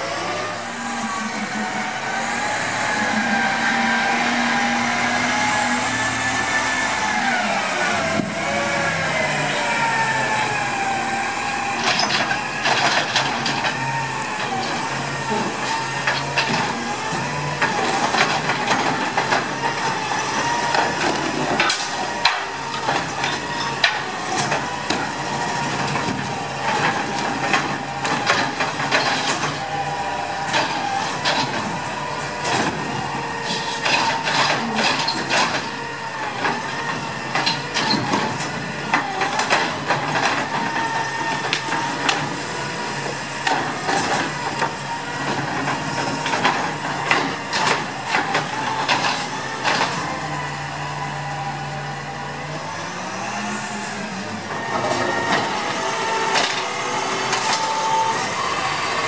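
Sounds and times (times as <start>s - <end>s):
garbage truck engine running: 0.0s - 59.0s
side-loader arm whine: 0.0s - 59.0s.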